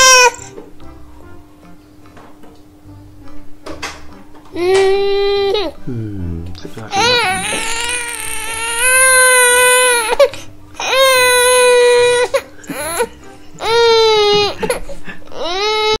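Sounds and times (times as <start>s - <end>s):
baby crying: 0.0s - 0.5s, 4.5s - 5.8s, 6.9s - 16.0s.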